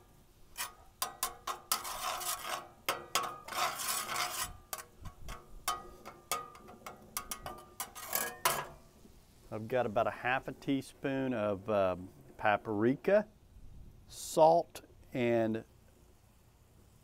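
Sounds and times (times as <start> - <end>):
metal spatula scraping skillet: 0.0 - 9.0.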